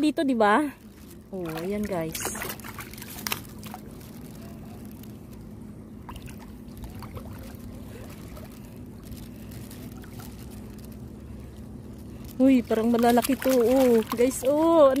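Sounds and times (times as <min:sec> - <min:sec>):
steady low hum: 0:00.0 - 0:15.0
water sloshing and splashing: 0:00.4 - 0:15.0
water drips: 0:12.7 - 0:15.0.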